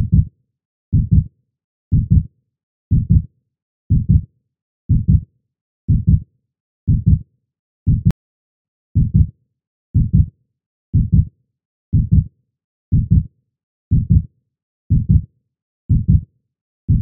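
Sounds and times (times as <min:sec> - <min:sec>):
heartbeat thumps: 0:00.0 - 0:00.3, 0:00.9 - 0:01.3, 0:01.9 - 0:02.2, 0:02.9 - 0:03.2, 0:03.9 - 0:04.2, 0:04.9 - 0:05.2, 0:05.9 - 0:06.2, 0:06.9 - 0:07.2, 0:07.9 - 0:08.2, 0:09.0 - 0:09.3, 0:10.0 - 0:10.3, 0:11.0 - 0:11.3, 0:11.9 - 0:12.3, 0:12.9 - 0:13.2, 0:13.9 - 0:14.2, 0:14.9 - 0:15.2, 0:15.9 - 0:16.2.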